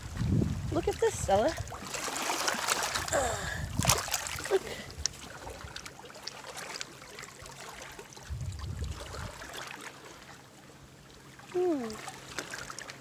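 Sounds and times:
water trickling over rocks: 0.0s - 10.2s.

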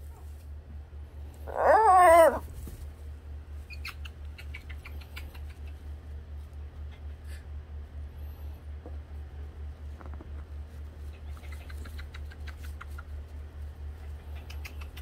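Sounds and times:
low pulsing hum: 0.0s - 15.0s.

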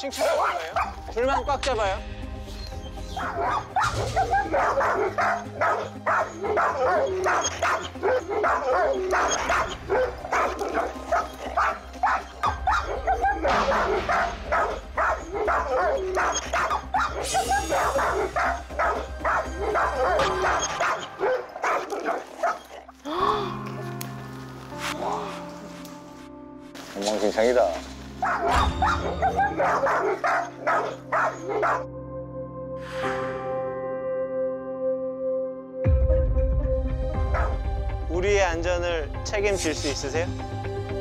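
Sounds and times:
background music: 0.0s - 41.0s
dogs barking aggressively: 0.2s - 1.1s, 3.0s - 22.9s, 28.1s - 31.9s, 37.3s - 37.6s.

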